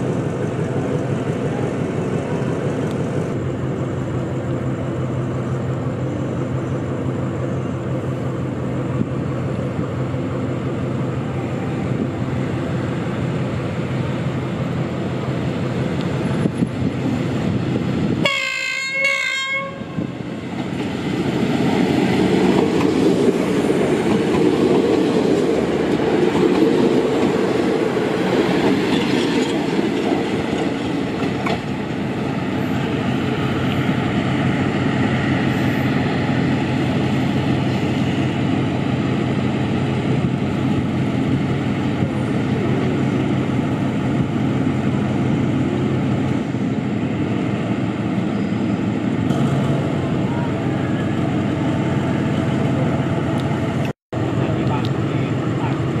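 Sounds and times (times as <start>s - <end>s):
train rumbling past: 0.0s - 56.0s
train horn: 18.2s - 20.2s.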